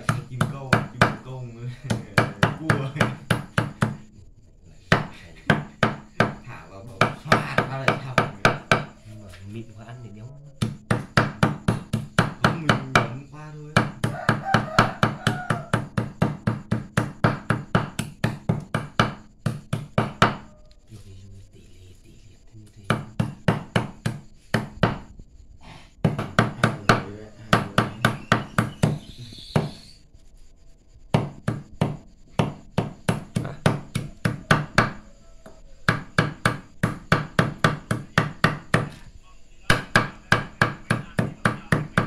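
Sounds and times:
cleaver chopping on wooden block: 0.0s - 4.0s, 10.6s - 13.1s, 13.8s - 20.5s, 22.9s - 25.1s, 26.0s - 29.7s, 31.1s - 35.0s, 35.9s - 39.0s.

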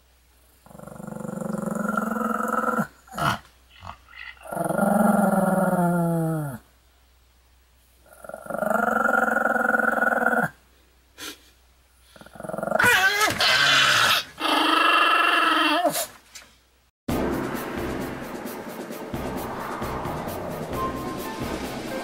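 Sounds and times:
dog growling: 0.6s - 6.6s, 8.1s - 10.6s, 12.2s - 12.9s
dog yapping: 12.8s - 16.1s.

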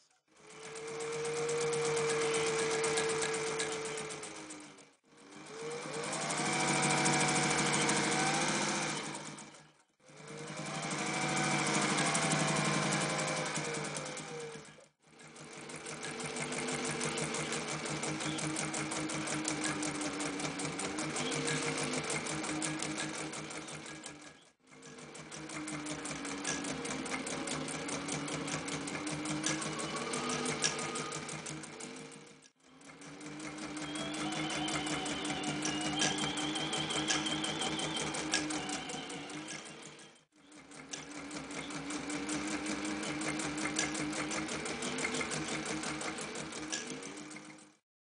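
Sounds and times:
sewing machine stitching fast: 0.3s - 47.8s.

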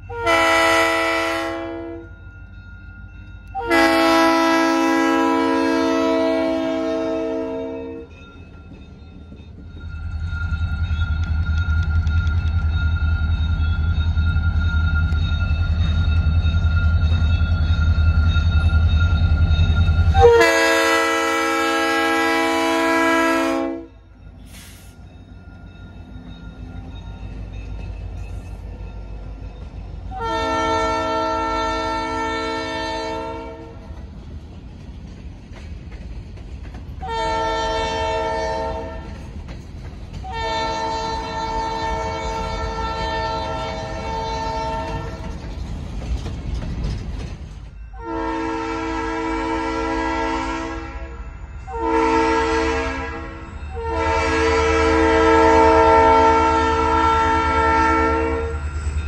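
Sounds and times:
locomotive air horn blasts: 0.1s - 2.1s, 3.5s - 8.1s, 20.1s - 24.0s, 30.1s - 33.8s, 37.0s - 39.1s, 40.3s - 45.2s, 48.0s - 58.6s
freight cars rumbling on rails: 2.0s - 59.0s.

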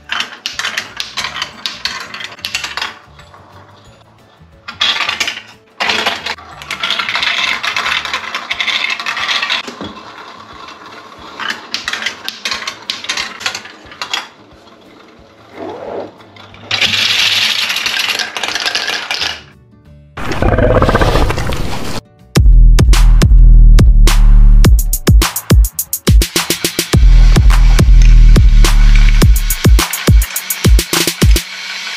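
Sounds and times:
marbles clattering down plastic tracks: 0.0s - 4.0s, 4.6s - 19.5s.

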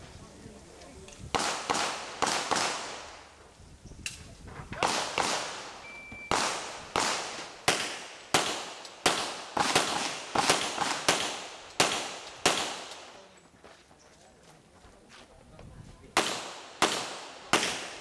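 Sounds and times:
handgun shots with echo: 6.3s - 13.0s, 16.2s - 18.0s.

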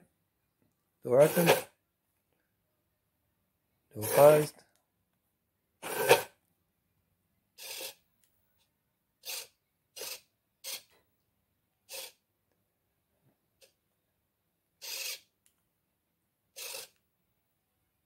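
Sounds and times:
servos whirring: 5.8s - 6.3s.

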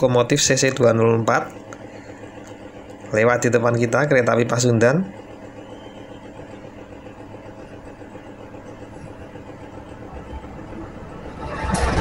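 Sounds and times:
diesel locomotive engine drone: 5.4s - 12.0s.

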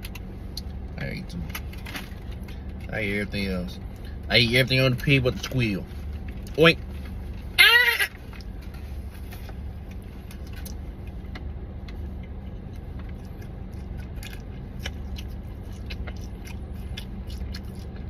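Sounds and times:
car cabin hum: 0.0s - 18.0s
person chewing: 9.8s - 18.0s.

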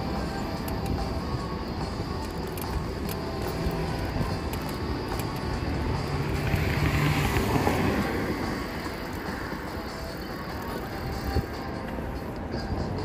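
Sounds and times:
traffic hum: 0.0s - 13.0s
vehicle passing: 3.2s - 11.6s.

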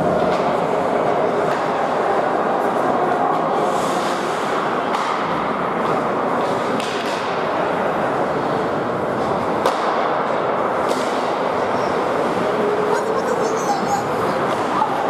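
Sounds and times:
hall noise: 10.6s - 15.0s.

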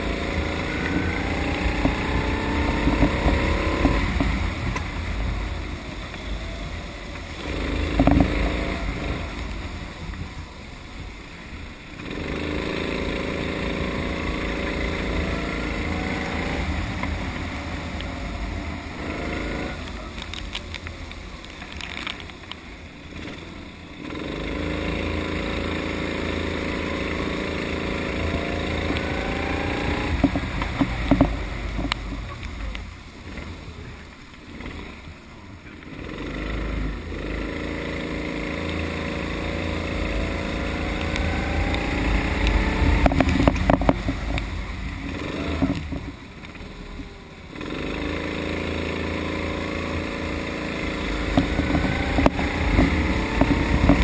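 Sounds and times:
low rumble: 0.0s - 35.9s
kart engine: 0.0s - 54.0s.

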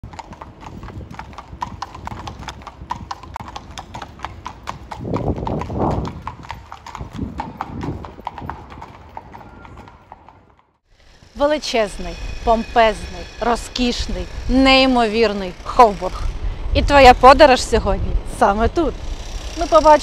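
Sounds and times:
horse hooves clip-clopping on paving: 0.0s - 10.8s.

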